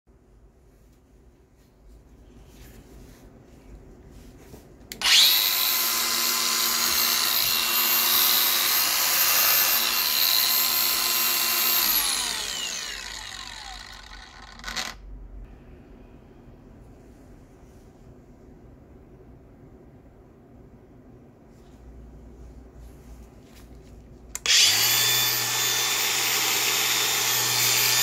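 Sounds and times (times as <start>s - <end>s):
angle grinder whining: 5.0s - 15.0s, 24.4s - 28.0s.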